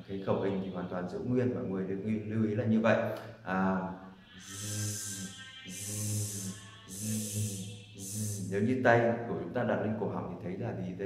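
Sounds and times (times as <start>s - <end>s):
man buzzing a z sound: 4.1s - 8.8s.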